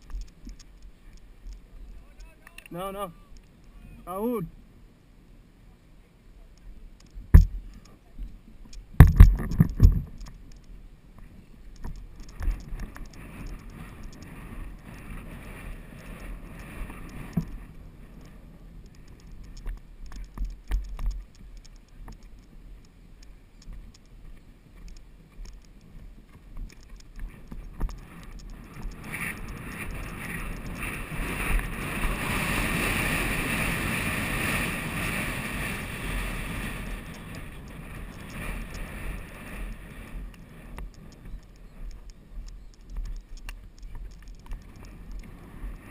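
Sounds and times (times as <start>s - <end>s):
horse hooves and tack rattling: 0.0s - 2.8s, 8.6s - 45.9s
wind buffeting microphone: 23.6s - 45.9s.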